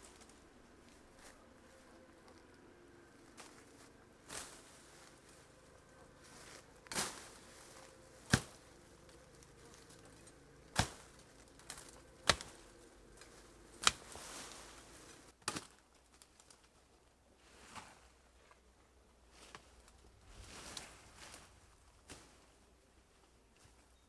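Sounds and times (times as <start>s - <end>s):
machete chopping bamboo: 8.2s - 8.6s, 10.7s - 12.6s, 13.8s - 14.1s, 15.4s - 15.8s.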